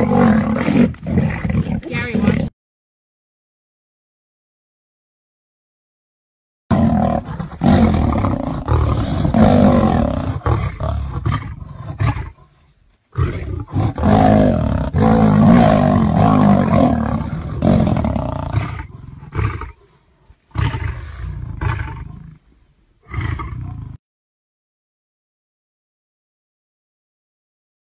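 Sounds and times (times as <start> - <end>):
big cats roaring: 0.0 - 2.5, 6.7 - 12.6, 13.2 - 22.4, 23.0 - 24.0.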